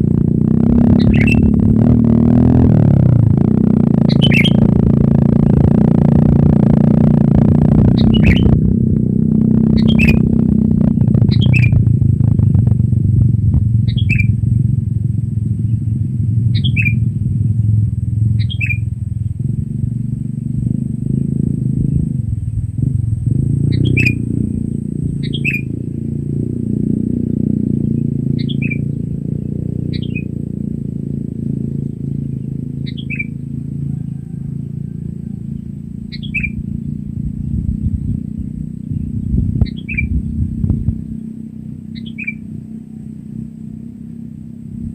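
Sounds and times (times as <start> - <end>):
low engine-like rumble: 0.0 - 44.9
bird calling: 0.8 - 1.6, 4.0 - 4.8, 7.8 - 8.7, 9.6 - 11.8, 13.8 - 14.4, 15.6 - 17.1, 18.4 - 19.3, 23.6 - 26.1, 27.2 - 30.4, 31.8 - 43.6.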